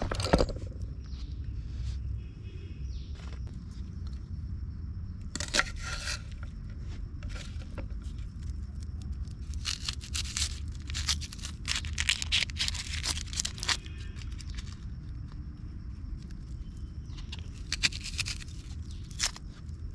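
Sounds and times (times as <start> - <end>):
rustling and scraping: 0.0 - 2.3, 3.0 - 4.3, 5.3 - 15.4, 16.4 - 19.9
steady low rumble: 0.0 - 12.2.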